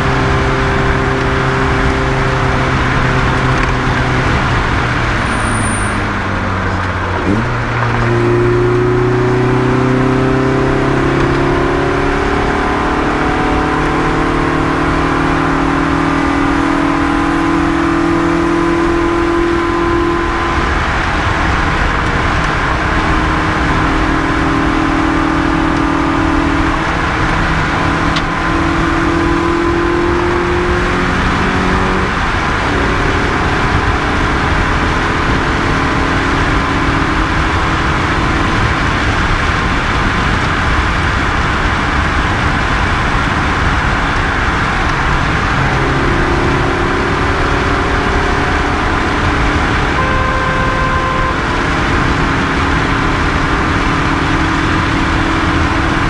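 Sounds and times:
rally car engine running hard: 0.0 - 56.0
road and tyre noise: 0.0 - 56.0.

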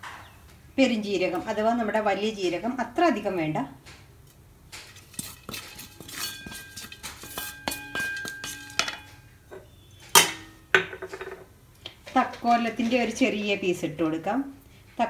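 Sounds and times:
wooden spatula scraping a pan: 4.8 - 9.6
spatula knocking on pan: 5.5 - 11.4.

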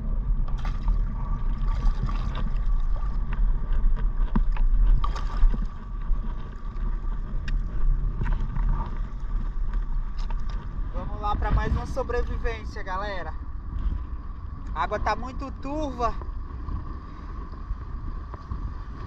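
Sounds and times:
wind buffeting microphone: 0.0 - 19.0
water sloshing and splashing: 0.4 - 12.6.

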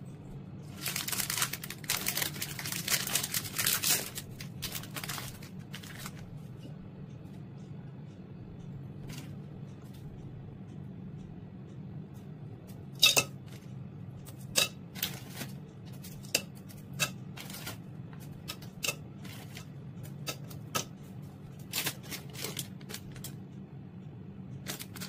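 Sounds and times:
low steady hum: 0.0 - 25.0
plastic wrapper crinkling and tearing: 0.7 - 6.2.

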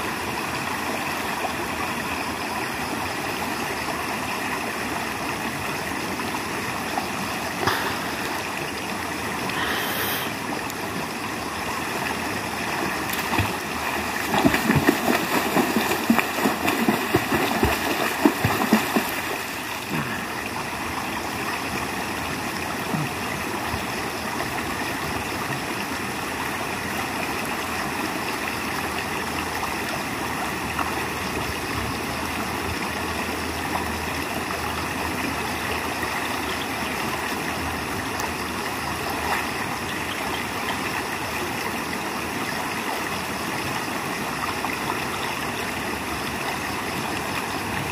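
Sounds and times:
river flowing over stones: 0.0 - 47.9
swimmer splashing: 12.9 - 20.4.

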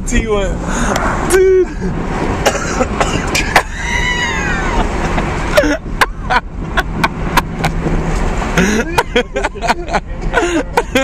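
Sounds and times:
vehicle engine rumble: 0.0 - 11.0
wind: 0.0 - 11.0
man crying out high-pitched: 1.3 - 1.9, 3.4 - 4.9.

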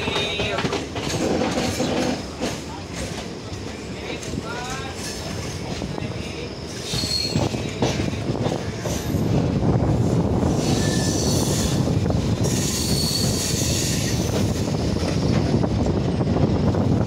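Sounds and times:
train wheels rumbling on rails: 0.0 - 17.0
wheel flanges squealing: 6.2 - 7.8, 10.5 - 15.4.

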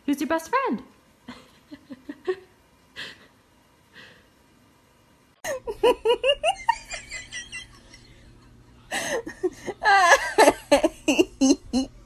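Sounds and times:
person giggling: 5.4 - 12.0.

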